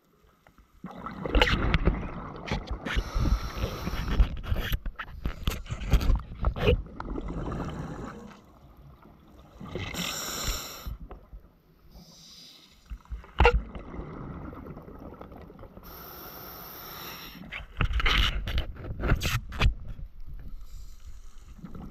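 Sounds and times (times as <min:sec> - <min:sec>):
diver breathing underwater bubbles: 0:00.8 - 0:04.6, 0:06.9 - 0:08.6, 0:09.4 - 0:11.1
low watery rumble: 0:13.0 - 0:15.8.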